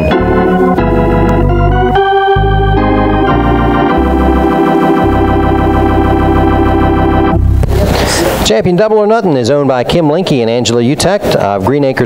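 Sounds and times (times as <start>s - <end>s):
organ chords with heavy bass: 0.0s - 8.4s.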